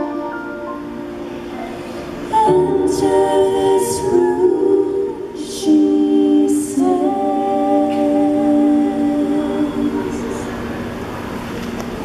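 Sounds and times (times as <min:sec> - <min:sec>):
keyboard: 0:00.0 - 0:12.0
woman singing: 0:02.3 - 0:10.6.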